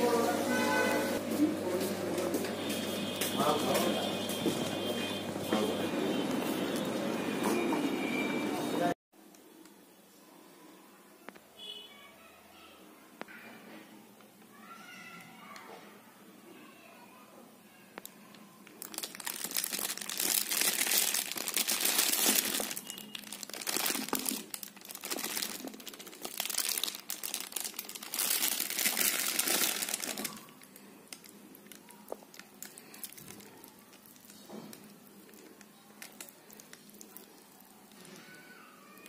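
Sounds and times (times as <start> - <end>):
foil food pouch crinkling: 18.6 - 38.4.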